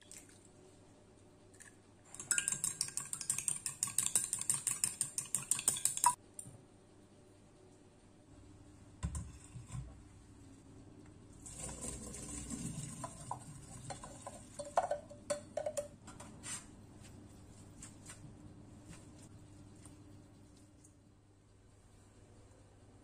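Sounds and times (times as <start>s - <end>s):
water splashing into colander: 11.4s - 15.0s.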